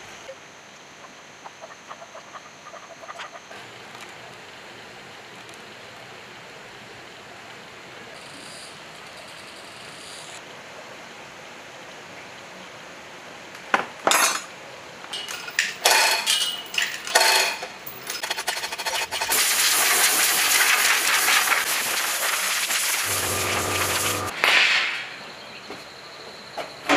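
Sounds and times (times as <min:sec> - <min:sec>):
metal tools clinking and knocking: 0:14.1 - 0:14.5, 0:15.1 - 0:19.2
steady hiss: 0:14.7 - 0:25.6.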